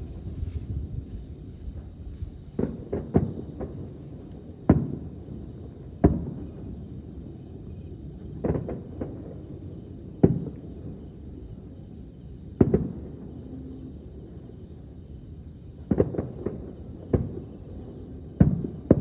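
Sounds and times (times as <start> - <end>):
distant firework booms: 2.5 - 6.9, 8.2 - 9.4, 10.2 - 10.9, 12.5 - 13.3, 15.8 - 19.0.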